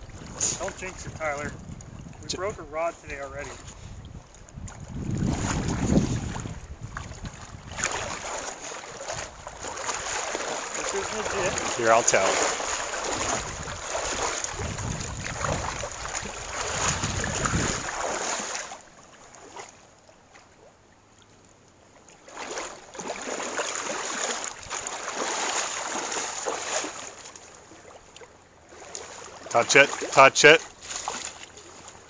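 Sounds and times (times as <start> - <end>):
fish thrashing and splashing in water: 5.0 - 19.7, 22.2 - 30.2, 30.8 - 32.0.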